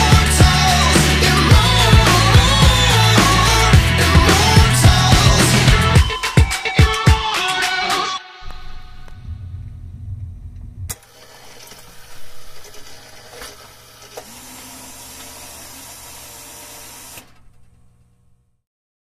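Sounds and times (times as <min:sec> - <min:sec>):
music bass: 0:00.0 - 0:06.2, 0:06.8 - 0:10.9.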